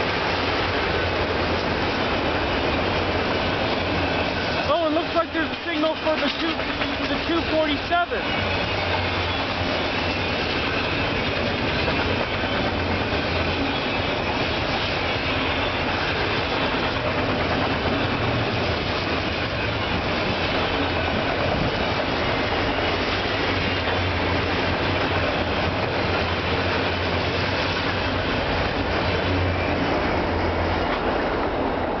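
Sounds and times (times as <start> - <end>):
freight train wheels on rail: 0.0 - 32.0.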